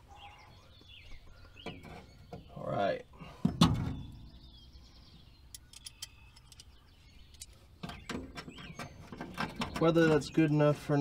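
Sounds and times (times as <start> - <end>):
birds chirping: 0.0 - 11.0
light clicks of handling parts: 5.5 - 7.6.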